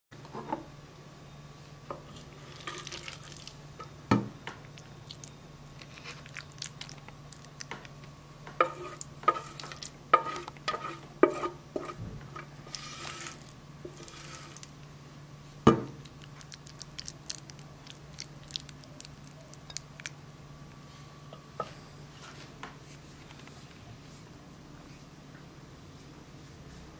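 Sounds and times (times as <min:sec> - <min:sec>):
steady low hum: 0:00.2 - 0:26.9
wet squelching spoon scoops: 0:16.1 - 0:20.2.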